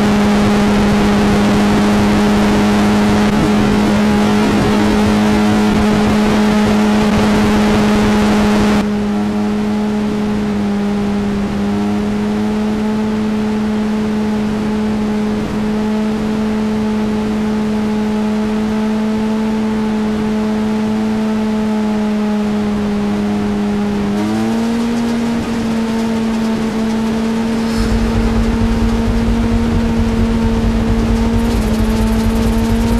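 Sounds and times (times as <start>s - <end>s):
motorcycle engine at high revs: 0.0s - 32.9s
wind noise: 25.4s - 32.9s.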